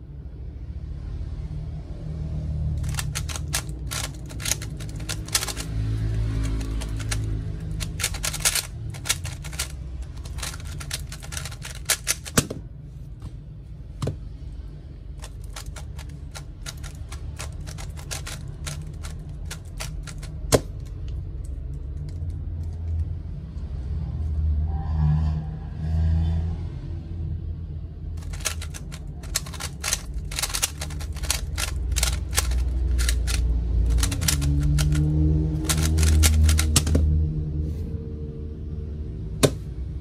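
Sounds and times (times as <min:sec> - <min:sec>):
puzzle cube clicking: 0:02.8 - 0:05.7, 0:06.4 - 0:12.6, 0:15.2 - 0:23.0, 0:28.2 - 0:37.1.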